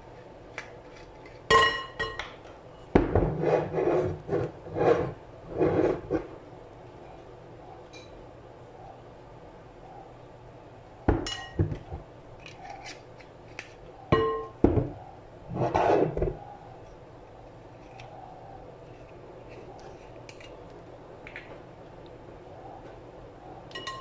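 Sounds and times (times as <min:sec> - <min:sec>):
glass clinking and knocking: 0:01.5 - 0:02.4, 0:11.1 - 0:11.9, 0:14.2 - 0:14.9, 0:23.7 - 0:24.0
glass scraping on counter: 0:03.2 - 0:06.3, 0:15.5 - 0:16.3.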